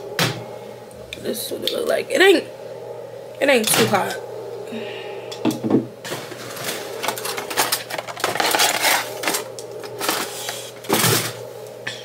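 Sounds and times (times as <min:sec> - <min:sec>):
steady hum: 0:00.0 - 0:12.0
kitchen items clicking and knocking: 0:05.5 - 0:11.4.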